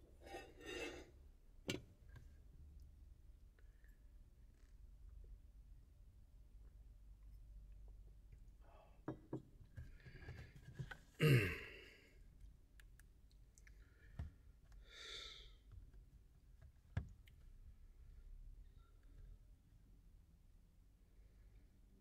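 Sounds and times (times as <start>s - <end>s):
breathy sigh: 11.2s - 12.1s.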